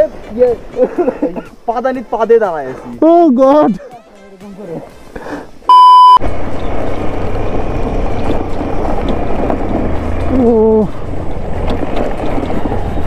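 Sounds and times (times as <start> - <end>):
brief pitched tone: 5.7 - 6.2
loud electronic beep: 5.7 - 6.2.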